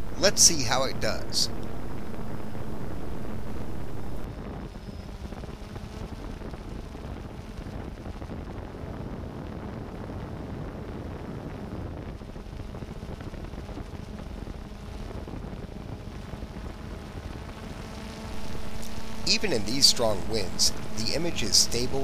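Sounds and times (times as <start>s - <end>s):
drone propellers humming: 0.0s - 4.3s, 18.0s - 22.0s
wind rushing over microphone: 0.0s - 22.0s.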